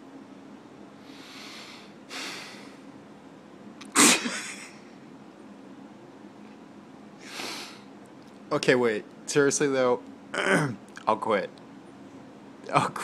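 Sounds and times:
soft breaths: 1.0s - 2.9s
loud sneeze: 3.9s - 4.6s.

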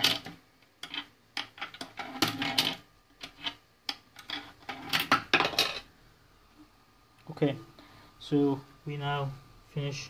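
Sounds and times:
coin acceptor clicking and rattling: 0.0s - 5.8s.

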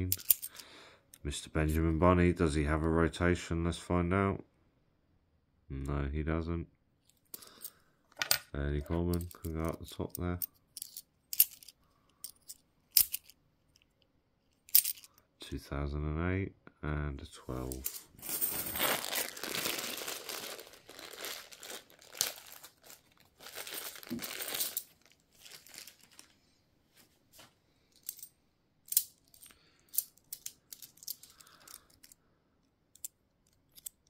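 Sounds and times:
coins clicking: 0.1s - 0.6s, 10.8s - 13.4s, 14.7s - 15.1s, 24.4s - 24.9s, 28.9s - 32.2s
plastic bag crinkling: 18.2s - 26.4s.

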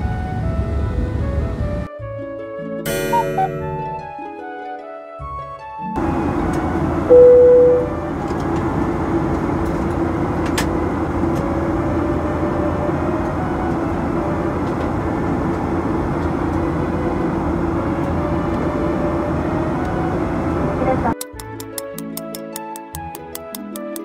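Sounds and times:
airplane cabin rumble: 0.0s - 1.9s, 6.0s - 21.2s
loud tone: 2.9s - 4.1s, 7.1s - 8.0s.

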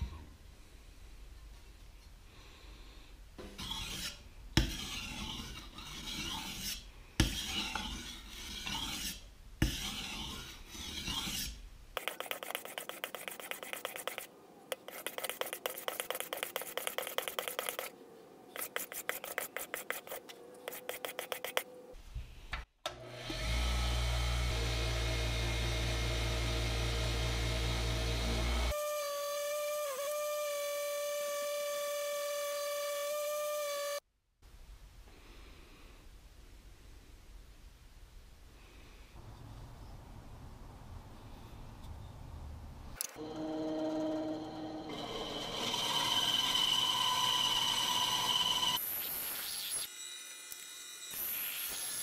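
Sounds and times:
blade grinding on sharpening stone: 3.6s - 17.9s
rough rubbing: 3.6s - 21.7s
bench buffer motor hum: 22.9s - 28.7s, 43.2s - 48.8s.

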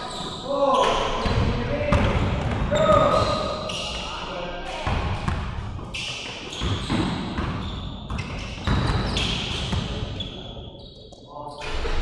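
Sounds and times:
sneakers squeaking on gym floor: 0.0s - 2.1s, 2.7s - 4.2s, 4.8s - 12.0s
basketball bouncing: 1.2s - 3.3s, 6.6s - 9.9s.

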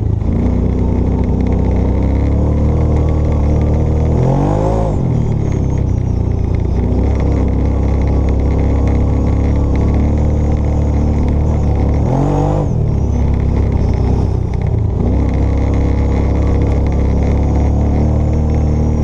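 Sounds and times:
atv engine running under load: 0.0s - 19.0s.

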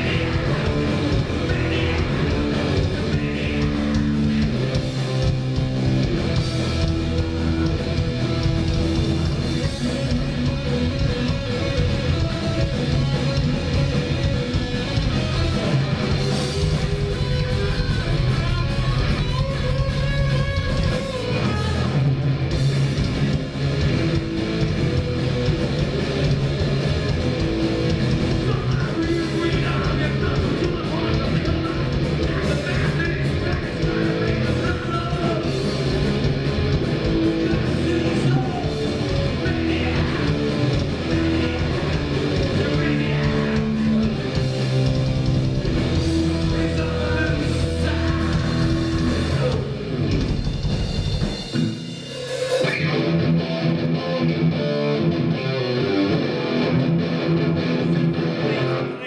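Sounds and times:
person singing: 0.0s - 4.7s, 28.4s - 35.6s, 37.4s - 44.1s, 46.3s - 49.7s
bass guitar: 0.0s - 59.0s
distorted electric guitars: 0.0s - 59.0s
drums: 0.0s - 59.0s.

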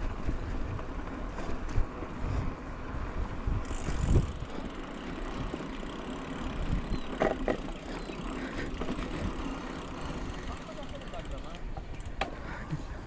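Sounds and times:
bike rattling: 0.0s - 13.0s
bike tyres on dirt: 0.0s - 13.0s
bike clatter: 3.6s - 12.8s.

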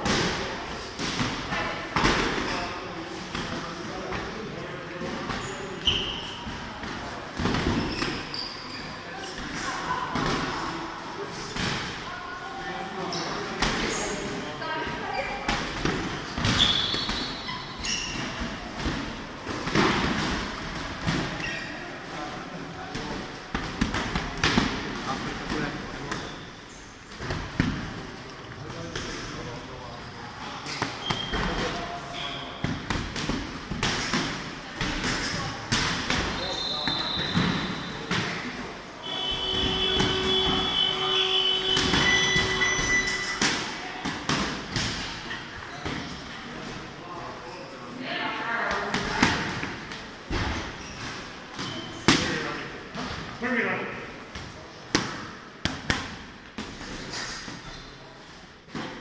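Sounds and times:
sneakers squeaking on mat: 5.2s - 9.7s, 13.0s - 21.8s, 25.8s - 27.8s, 30.6s - 32.9s, 33.8s - 46.2s, 49.3s - 52.4s, 56.8s - 58.3s.

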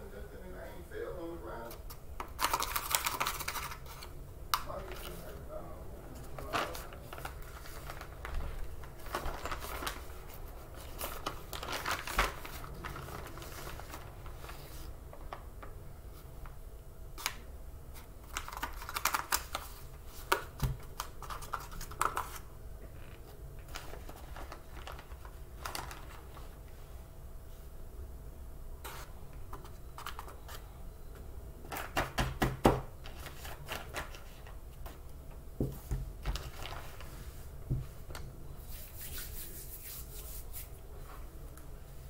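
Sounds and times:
plastic bag rustling: 4.7s - 15.5s, 23.7s - 26.6s, 35.6s - 38.0s.

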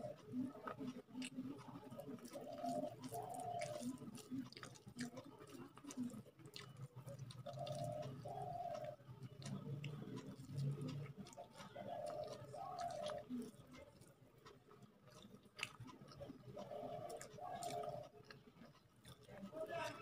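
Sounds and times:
bird cooing: 0.0s - 4.5s, 6.9s - 13.8s, 16.0s - 18.2s
wet clicks of hand mixing food: 0.0s - 20.0s.

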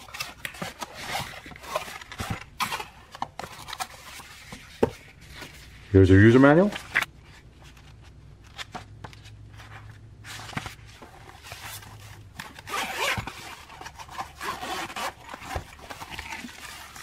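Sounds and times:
zipper pulled open: 12.6s - 13.4s.

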